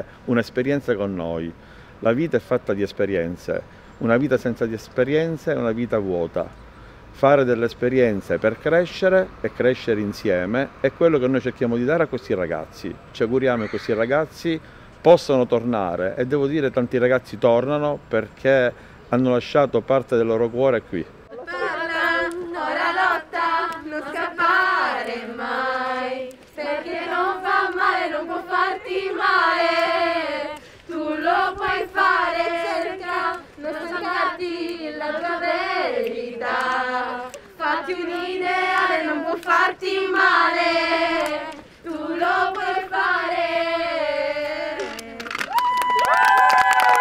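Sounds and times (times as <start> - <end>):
women singing together: 21.3 - 45.5.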